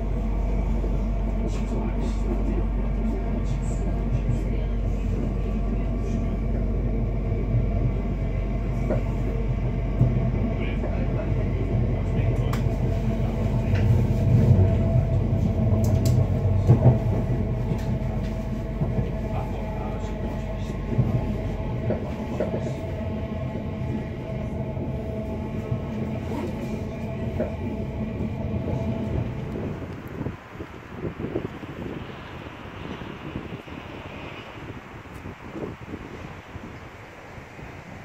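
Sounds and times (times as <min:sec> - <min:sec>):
train wheels rumbling on rail: 0:00.0 - 0:38.0.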